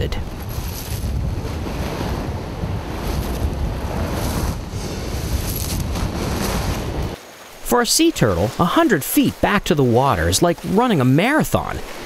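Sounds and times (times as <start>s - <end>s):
wind rumbling on microphone: 0.0s - 7.2s
surf washing on beach: 0.0s - 12.0s.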